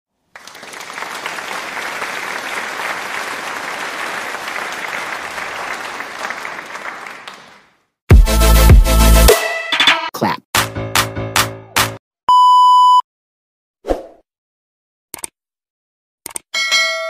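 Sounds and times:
crowd applause: 0.3s - 7.8s.

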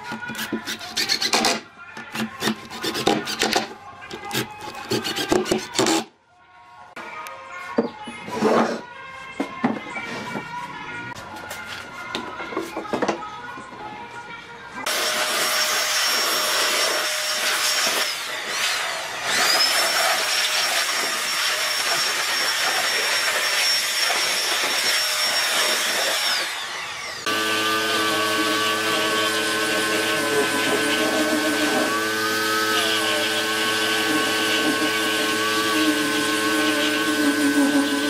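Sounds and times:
machine humming: 26.4s - 38.0s.

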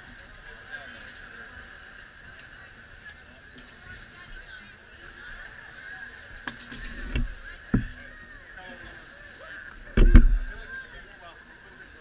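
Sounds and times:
steady background hum: 0.0s - 12.0s
heavy deep thump: 10.0s - 10.6s.

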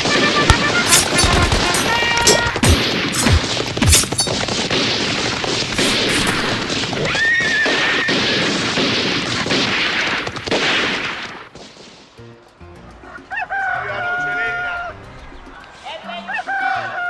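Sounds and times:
sharp shot or blast: 0.5s - 11.8s.

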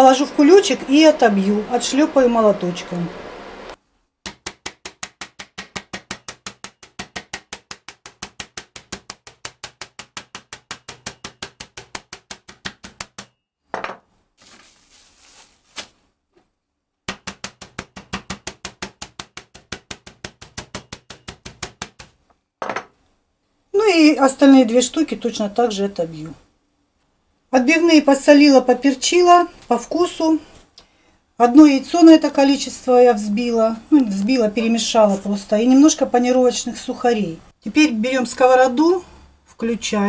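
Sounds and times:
meat mallet pounding: 4.3s - 13.3s, 17.1s - 22.2s.

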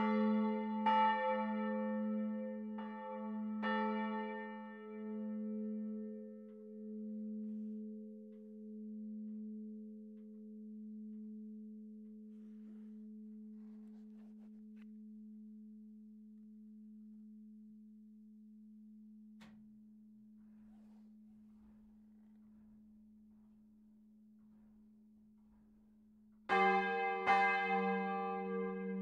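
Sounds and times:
church bell humming: 0.0s - 9.5s, 26.5s - 29.0s.

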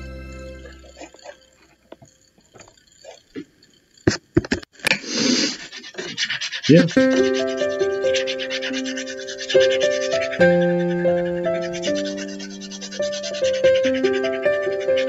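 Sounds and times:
background music with held chords: 0.0s - 1.1s.

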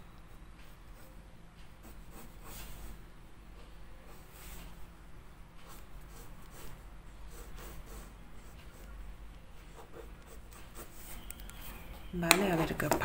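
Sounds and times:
faint low hum: 0.0s - 13.0s
pencil scratching on paper: 1.8s - 3.0s, 5.6s - 8.9s, 9.7s - 11.3s.

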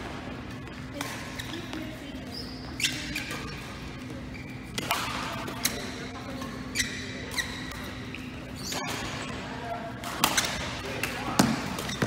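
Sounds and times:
shoes squeaking on court floor: 0.3s - 12.0s
racket striking shuttlecock: 4.8s - 5.8s.

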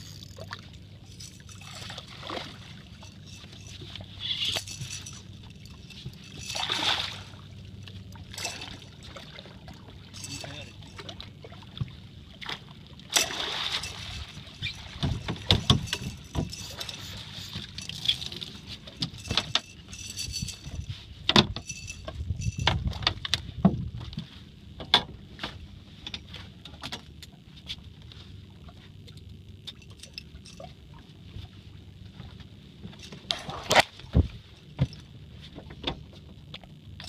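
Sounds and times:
water splashing: 1.5s - 5.1s, 6.4s - 7.5s.

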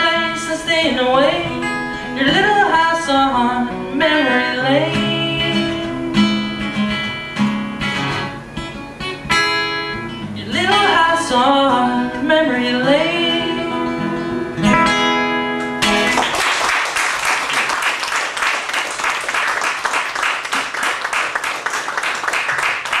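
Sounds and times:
acoustic guitar: 0.0s - 23.0s
man singing: 10.4s - 14.6s
audience clapping: 15.8s - 23.0s.

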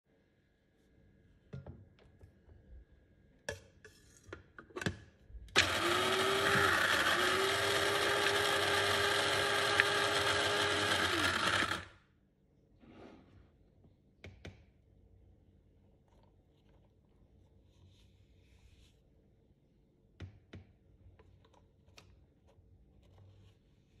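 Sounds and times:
electric grinder motor grinding: 5.6s - 12.0s.

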